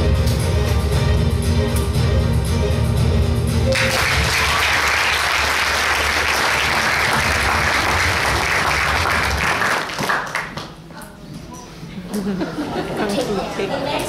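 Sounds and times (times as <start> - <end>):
performance music: 0.0 - 10.5
audience applauding: 3.7 - 10.8.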